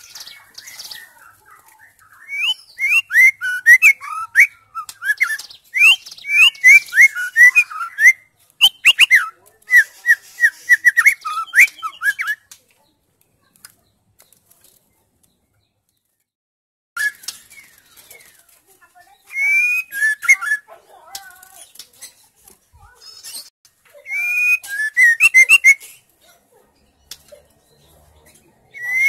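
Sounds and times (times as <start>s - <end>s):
songbird singing whistled notes: 0.0s - 12.5s, 17.0s - 20.8s, 22.9s - 26.1s, 27.0s - 29.0s.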